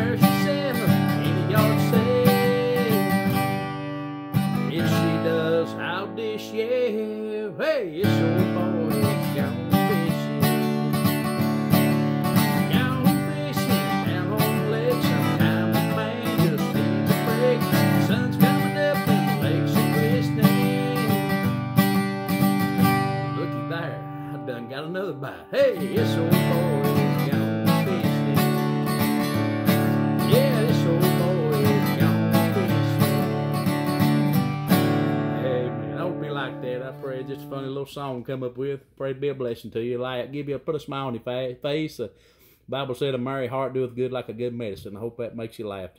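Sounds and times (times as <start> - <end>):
man singing: 0.0 - 3.8, 4.4 - 42.1
acoustic guitar strumming: 0.0 - 38.4.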